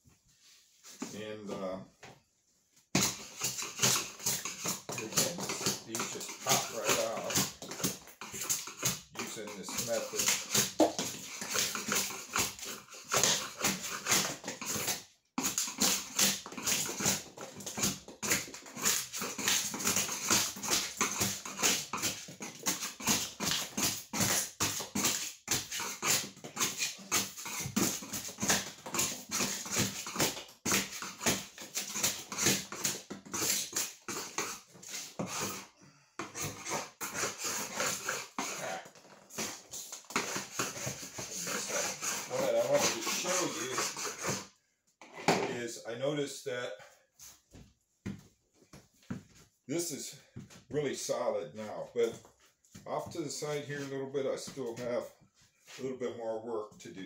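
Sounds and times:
hand scraper knocking on plywood: 0:02.9 - 0:35.6, 0:36.2 - 0:44.5.

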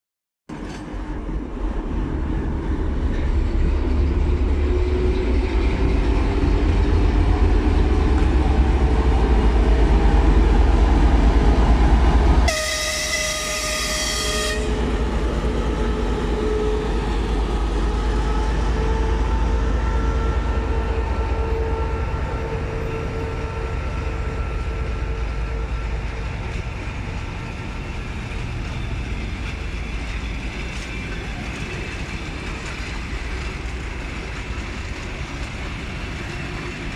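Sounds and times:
diesel locomotive engine rumbling: 0:00.5 - 0:36.9
locomotive horn: 0:12.5 - 0:15.1, 0:17.8 - 0:26.0
coaches rolling on rails: 0:22.1 - 0:36.9.

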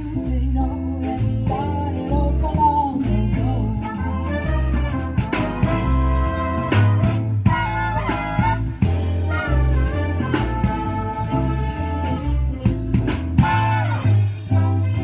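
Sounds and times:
drum kit: 0:00.0 - 0:15.0
jazz big band playing: 0:00.0 - 0:15.0
walking upright bass: 0:00.0 - 0:15.0
brass horns: 0:03.6 - 0:15.0.

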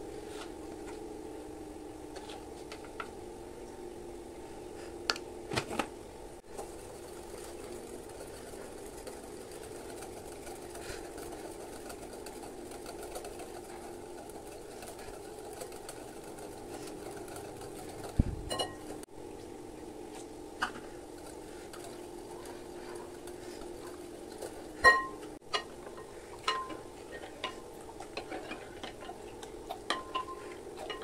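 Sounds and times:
steady mechanical hum: 0:00.0 - 0:31.0
wire whisk stirring in glass bowl: 0:06.6 - 0:19.1.

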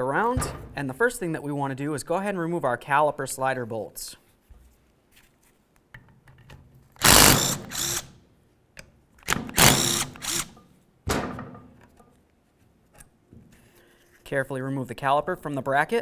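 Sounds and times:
cordless power driver running: 0:07.0 - 0:08.1, 0:09.3 - 0:10.5.

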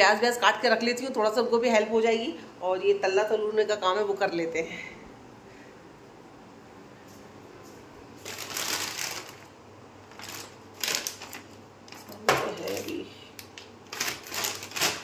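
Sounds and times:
crinkling and rustling: 0:07.7 - 0:15.0.

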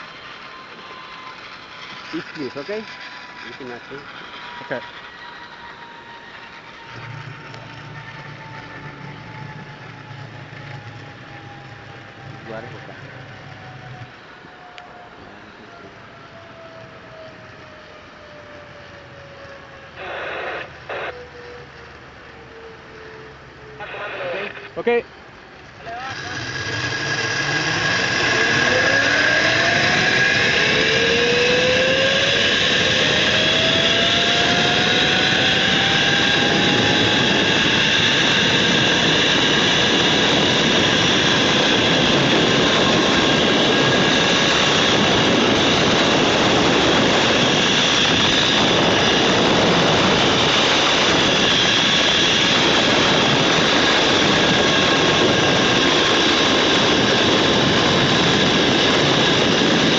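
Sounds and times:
zip-line pulleys whining on cable: 0:00.0 - 0:23.7, 0:25.6 - 0:59.9
rushing air: 0:26.1 - 0:59.9.

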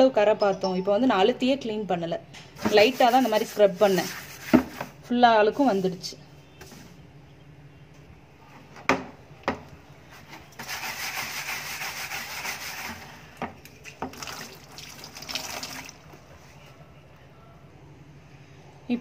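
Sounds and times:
wire scrubber scrubbing plastic bucket: 0:10.6 - 0:13.2.

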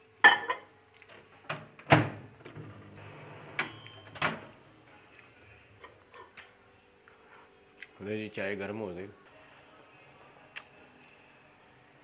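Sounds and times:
microwave ding: 0:03.6 - 0:04.4.

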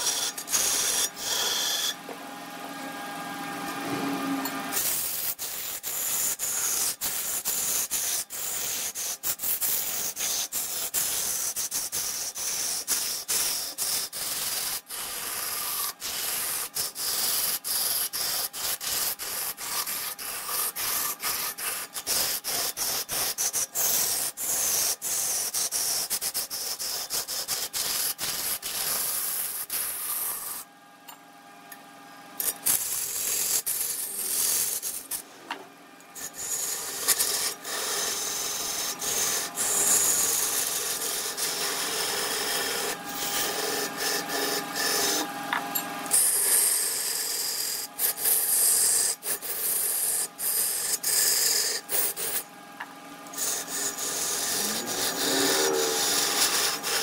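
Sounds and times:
tool rasping on spinning wood lathe: 0:00.0 - 0:02.2, 0:02.9 - 0:30.7, 0:32.4 - 0:52.5, 0:53.2 - 0:57.0
lathe motor hum: 0:00.0 - 0:04.9, 0:34.2 - 0:57.0.

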